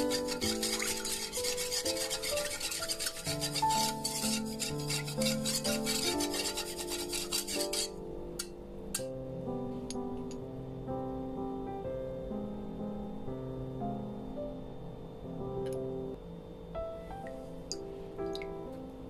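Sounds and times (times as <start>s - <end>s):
metal whisk scraping a saucepan: 0.0s - 8.5s.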